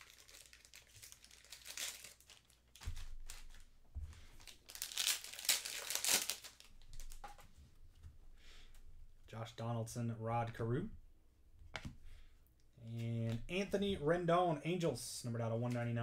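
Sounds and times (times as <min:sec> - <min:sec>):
plastic packaging crinkling: 0:00.0 - 0:07.4.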